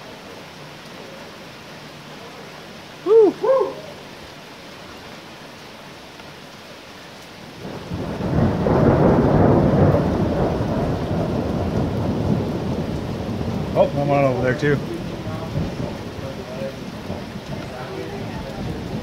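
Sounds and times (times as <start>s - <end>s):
heavy rain: 0.0s - 19.0s
rising and falling pitched calls: 3.0s - 4.1s
rolling thunder rumble: 7.6s - 19.0s.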